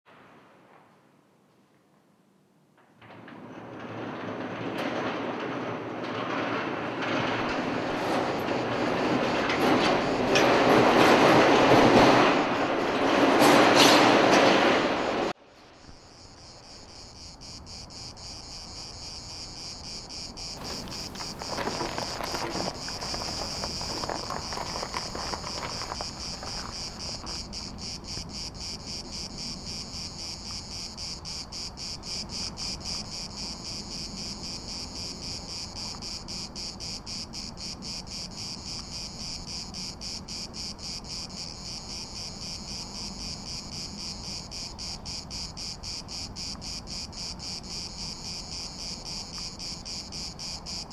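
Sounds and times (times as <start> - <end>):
insects chirring: 8.2 - 10.6, 15.0 - 50.9.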